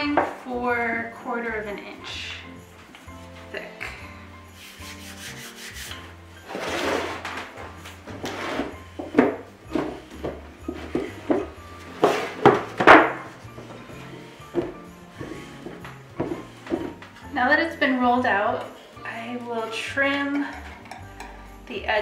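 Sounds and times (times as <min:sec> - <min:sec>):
soft background music: 0:00.0 - 0:22.0
rolling pin rubbing on dough: 0:04.5 - 0:07.2.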